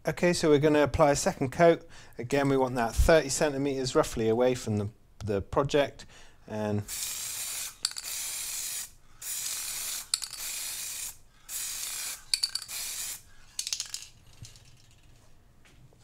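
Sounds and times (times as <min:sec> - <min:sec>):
aerosol spray hissing: 0:06.8 - 0:13.3
spray can clicks: 0:07.7 - 0:08.3, 0:09.4 - 0:11.1, 0:11.8 - 0:14.0.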